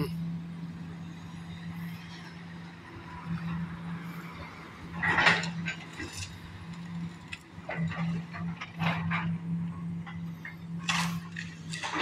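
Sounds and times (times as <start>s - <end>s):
diesel engine drone: 0.0s - 12.0s
falling debris clatter: 10.8s - 12.0s.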